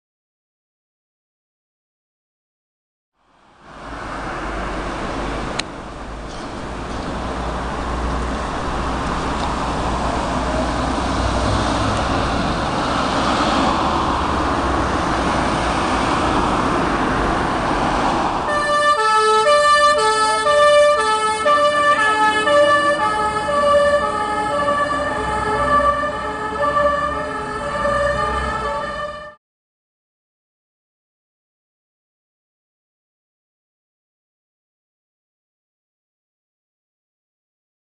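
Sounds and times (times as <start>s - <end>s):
fire engine two-tone siren: 18.4s - 29.4s.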